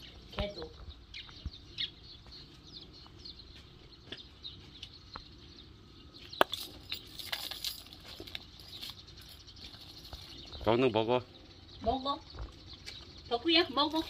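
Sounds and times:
small birds chirping: 0.0s - 14.0s
metal chain clinking: 6.4s - 10.4s.

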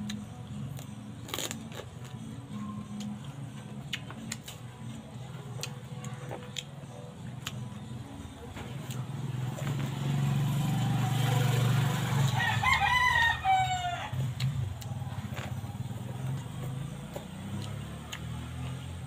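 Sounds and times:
rooster crowing: 12.1s - 14.4s.

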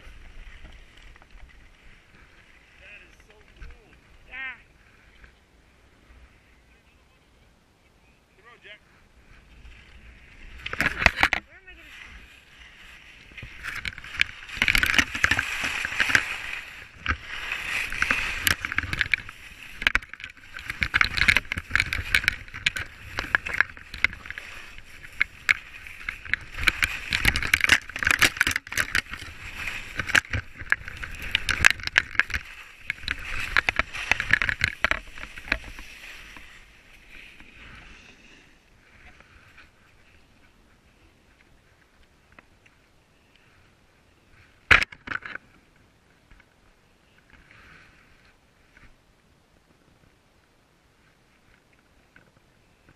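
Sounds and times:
skis clicking and clattering: 0.0s - 5.3s, 9.3s - 43.6s
skis scraping on snow: 9.1s - 41.8s.

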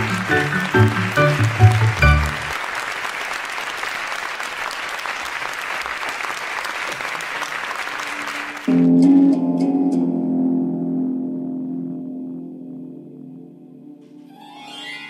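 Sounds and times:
music: 0.0s - 2.6s, 8.0s - 15.0s
audience applauding: 0.0s - 8.9s.

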